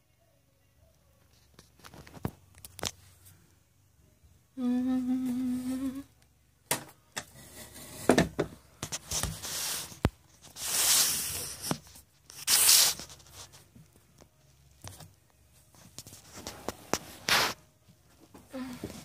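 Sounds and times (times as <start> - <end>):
woman humming: 4.6 - 6.2, 18.5 - 19.0
rubbing and scraping on microphone: 8.8 - 13.7, 15.7 - 17.6.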